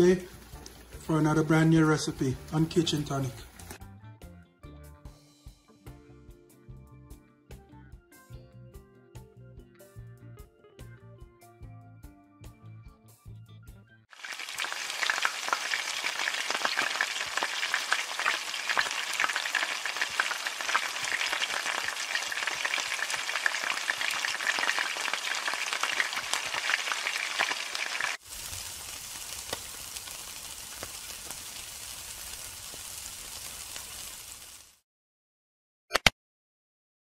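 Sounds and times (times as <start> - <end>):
food sizzling in hot oil: 0.0 - 3.8, 14.1 - 34.8.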